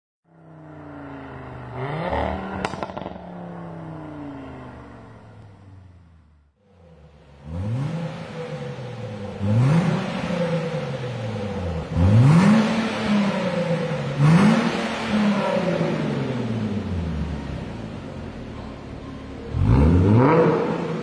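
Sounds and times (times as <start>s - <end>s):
car engine revving: 0.3s - 18.6s, 19.2s - 21.0s
exhaust crack: 1.5s - 6.5s.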